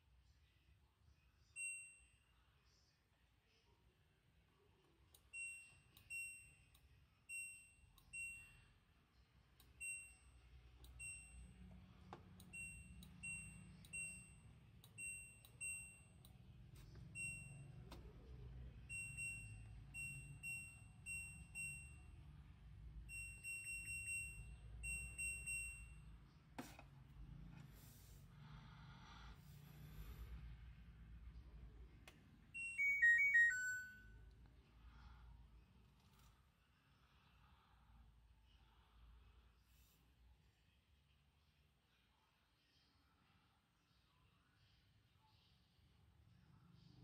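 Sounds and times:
washing machine beeping: 1.6s - 2.2s, 5.2s - 6.7s, 7.3s - 8.7s, 9.6s - 11.6s, 12.4s - 16.2s, 17.1s - 17.9s, 18.8s - 22.4s, 23.0s - 26.1s, 32.5s - 34.2s.

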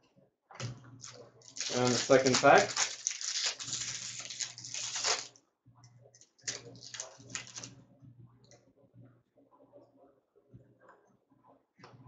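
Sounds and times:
cards clicking and rustling: 1.0s - 5.3s, 6.2s - 7.7s
foil wrapper crinkling: 1.0s - 5.3s, 6.2s - 7.7s.

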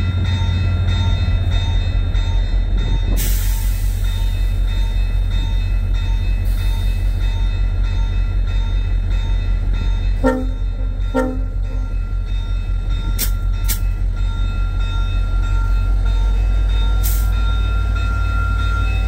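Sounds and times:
freight train rumbling: 0.0s - 19.0s
train horn blast: 10.2s - 11.9s.

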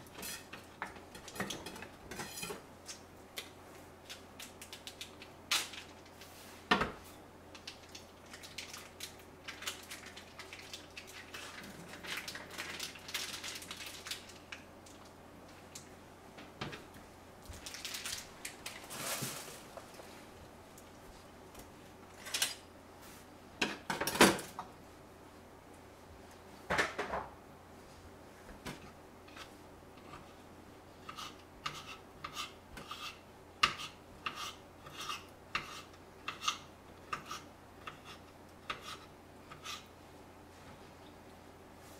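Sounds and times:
soft handling noises: 14.5s - 22.4s.

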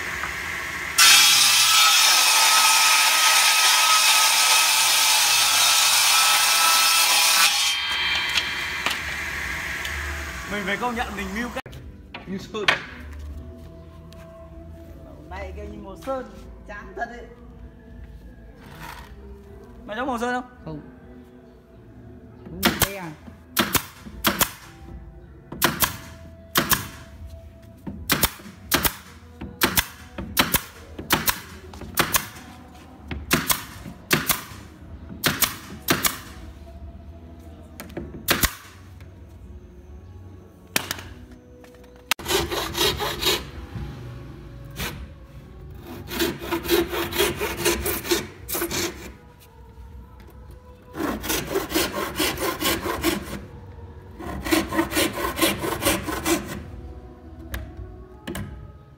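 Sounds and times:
nail gun firing: 23.6s - 24.7s, 25.6s - 27.0s, 28.1s - 32.4s, 33.3s - 34.6s, 35.2s - 36.3s, 38.3s - 38.8s
hand saw cutting wood: 42.2s - 43.5s, 45.8s - 49.2s, 50.9s - 53.5s, 54.2s - 56.6s.

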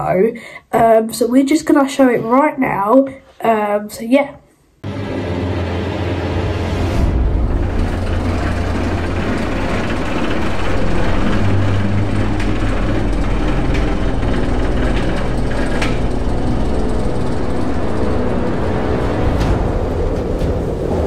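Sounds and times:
chain lift hum and rumble: 7.3s - 21.0s
faint clatter and clicks: 7.6s - 18.6s.

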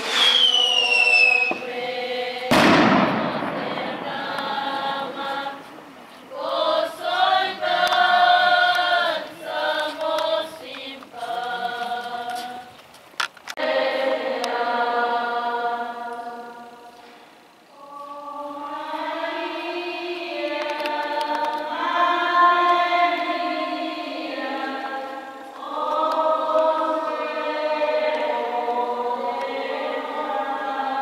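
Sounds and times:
firework bang: 0.0s - 1.7s, 2.5s - 4.7s
voices singing together: 0.0s - 12.8s, 13.5s - 31.0s.

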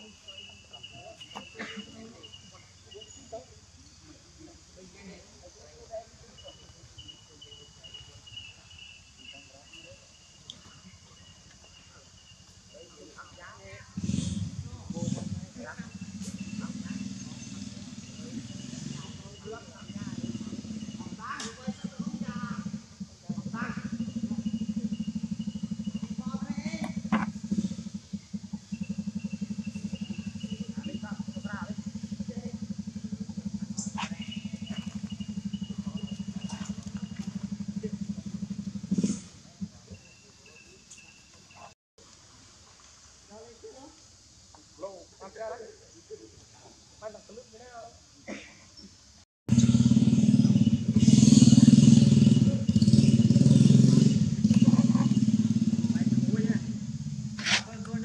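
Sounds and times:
small engine running: 13.9s - 40.1s, 49.5s - 58.0s.

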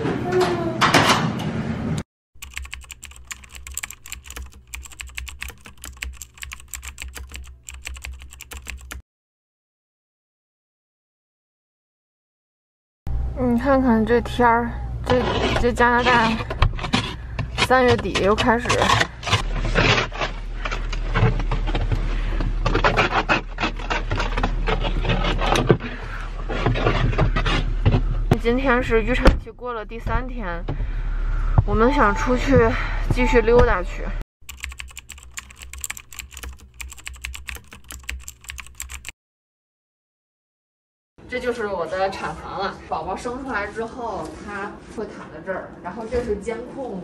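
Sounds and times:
keyboard typing clicks: 2.4s - 9.0s, 34.4s - 39.1s
low hum: 28.0s - 34.2s.

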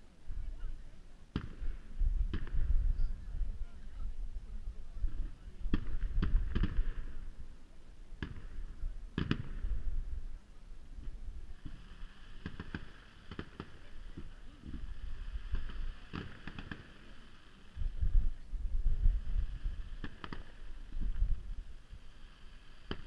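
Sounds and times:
crackling pops: 1.3s - 2.7s, 5.6s - 7.1s, 8.2s - 9.7s, 11.0s - 14.9s, 15.5s - 17.3s, 19.9s - 21.6s, 22.8s - 23.0s
firework hiss: 4.7s - 23.0s
firework shells bursting: 11.0s - 14.9s, 15.5s - 17.7s, 19.8s - 23.0s.

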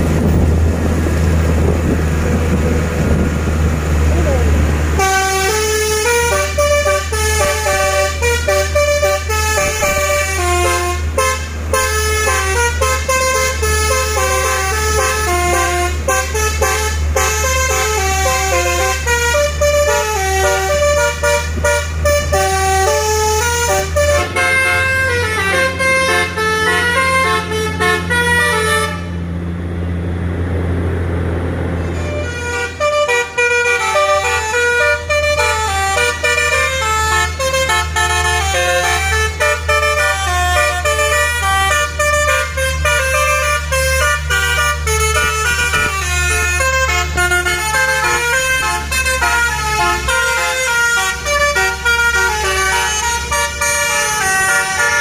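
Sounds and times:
multi-tone truck horn melody: 4.2s - 29.4s, 31.8s - 55.0s.

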